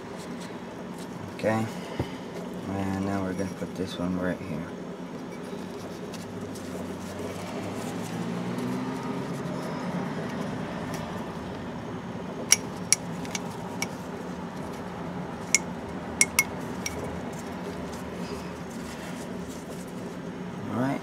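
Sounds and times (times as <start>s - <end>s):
steady low hum: 10.9s - 21.0s
light clicks and clinks: 15.5s - 17.1s.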